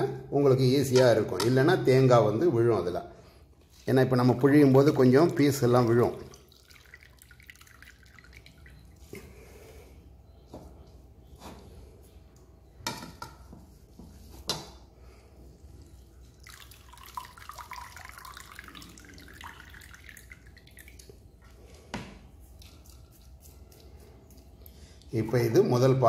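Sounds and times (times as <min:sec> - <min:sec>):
milk trickling into bowl: 0:04.7 - 0:09.2, 0:15.6 - 0:25.6
liquid splashes: 0:05.8 - 0:09.1, 0:16.3 - 0:21.2.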